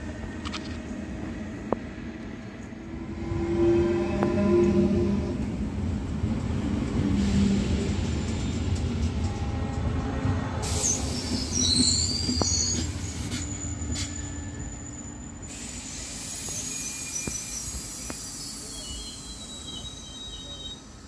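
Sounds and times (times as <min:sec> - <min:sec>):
train low rumble: 0:00.0 - 0:21.0
train wheels squealing: 0:10.6 - 0:21.0.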